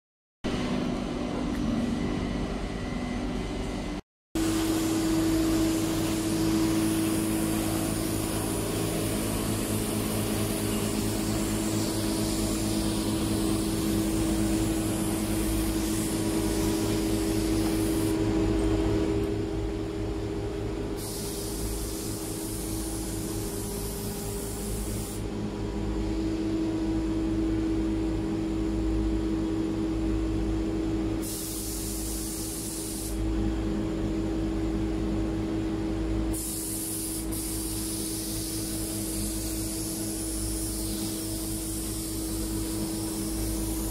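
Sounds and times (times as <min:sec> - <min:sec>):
air compressor humming: 0:00.5 - 0:29.1, 0:29.8 - 0:34.1, 0:35.9 - 0:43.9
spray gun hissing: 0:04.4 - 0:18.2, 0:21.0 - 0:25.2, 0:31.2 - 0:33.2, 0:36.3 - 0:43.9.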